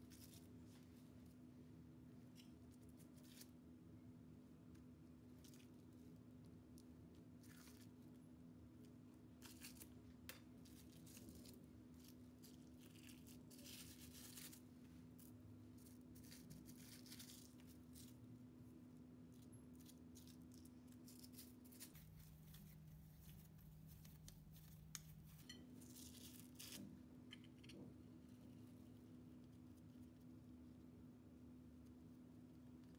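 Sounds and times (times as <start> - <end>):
dough rustling: 5.2 - 27.2.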